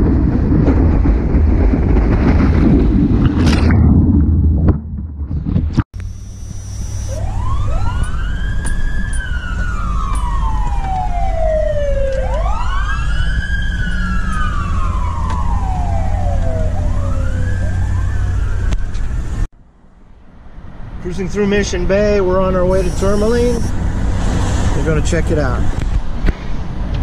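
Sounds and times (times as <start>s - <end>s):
engine and road rumble: 0.0s - 27.0s
emergency sirens wailing: 6.6s - 19.4s, 22.5s - 23.9s.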